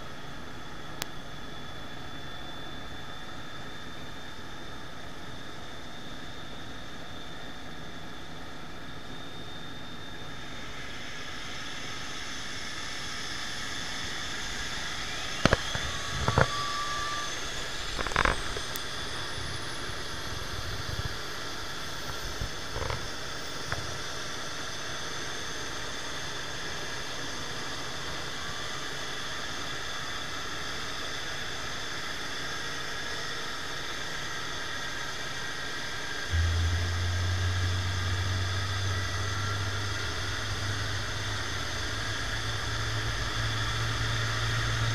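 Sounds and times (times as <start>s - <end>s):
jet turbine whine: 0.0s - 44.9s
low hum: 10.1s - 24.0s, 36.2s - 44.9s
engine spooling up: 13.8s - 22.6s, 36.3s - 44.9s.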